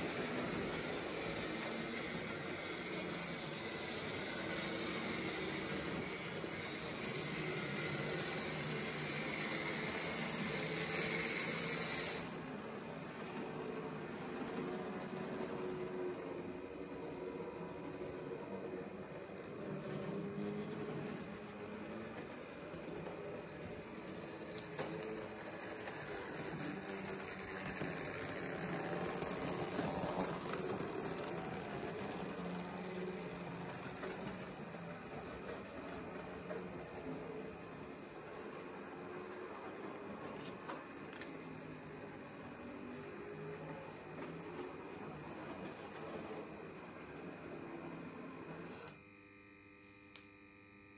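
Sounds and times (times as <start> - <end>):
model train motors whining: 0.0 - 50.9.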